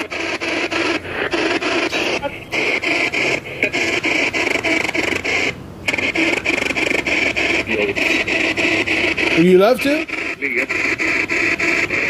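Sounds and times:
spirit box radio static sweeping: 0.0s - 12.0s.

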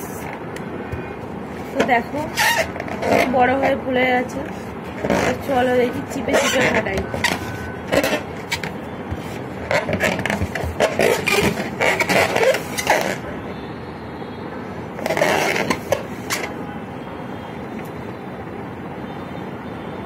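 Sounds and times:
balloon squeaking and rubbing: 0.0s - 13.4s, 15.0s - 16.6s.

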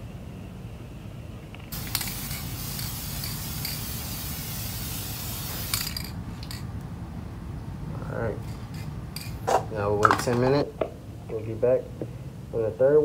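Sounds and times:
aerosol spray can hissing: 1.7s - 6.2s.

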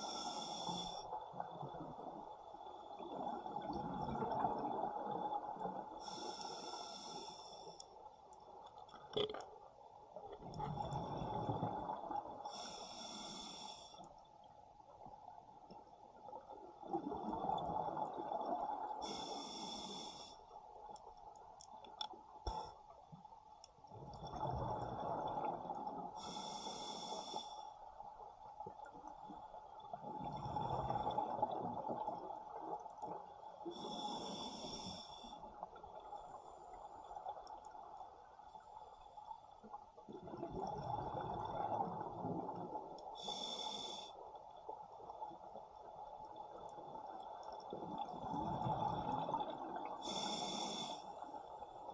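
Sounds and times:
regulator hissing inhale: 0.0s - 1.1s, 6.0s - 7.8s, 12.5s - 14.1s, 19.0s - 20.5s, 26.2s - 27.7s, 33.7s - 35.4s, 43.2s - 44.2s, 50.0s - 51.5s.

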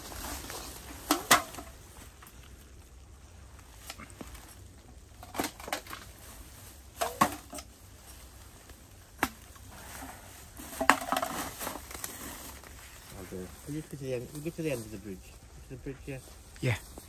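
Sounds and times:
footsteps crunching in snow: 0.0s - 1.0s
faint background hiss: 0.0s - 17.0s.

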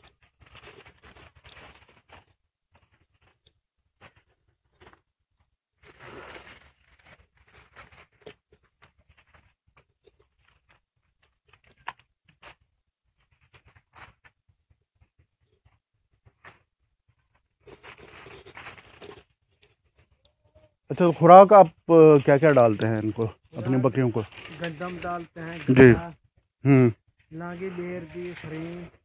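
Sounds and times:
rustling of dry leaves: 0.0s - 3.4s, 5.8s - 12.6s, 17.6s - 29.0s
small cracks of stalks: 6.4s - 12.6s, 22.1s - 25.9s.

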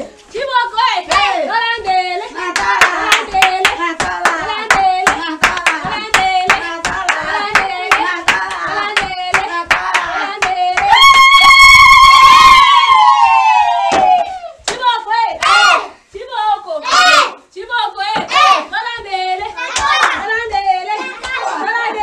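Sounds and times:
voices singing along: 0.0s - 22.0s
rhythmic hand clapping: 1.0s - 11.6s, 13.7s - 15.6s, 18.2s - 22.0s.

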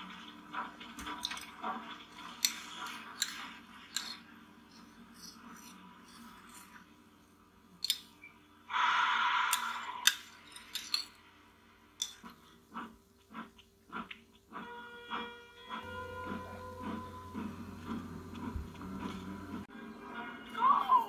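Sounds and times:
teaspoon scraping cup: 2.3s - 6.9s.

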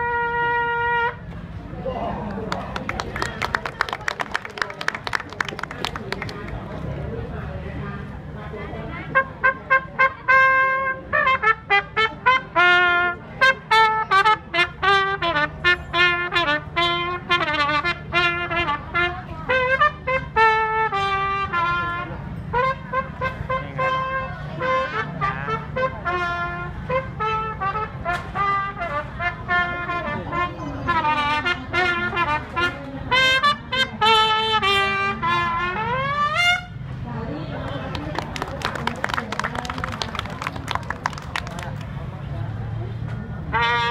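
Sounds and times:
trumpet playing lively tune: 0.0s - 1.2s, 9.1s - 36.8s, 43.5s - 43.9s.

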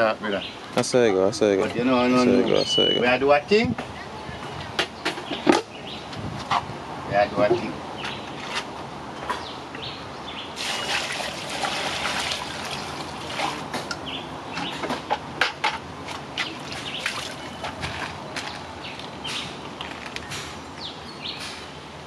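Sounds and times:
water splashing in a pot: 10.6s - 13.7s.

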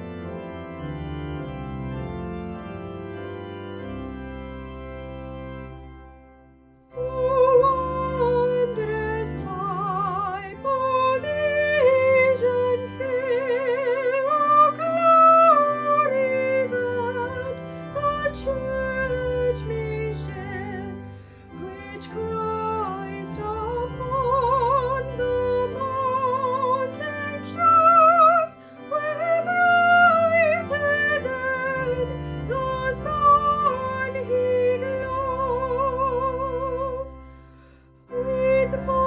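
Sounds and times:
organ: 0.0s - 39.0s
woman singing with vibrato: 7.0s - 20.9s, 21.6s - 37.2s, 38.1s - 39.0s.

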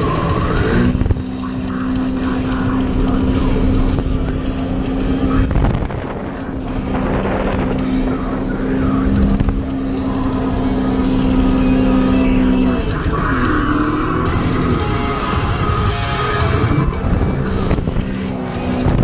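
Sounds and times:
watercraft engine drone: 0.0s - 19.0s
wind and water rushing: 5.4s - 8.2s.

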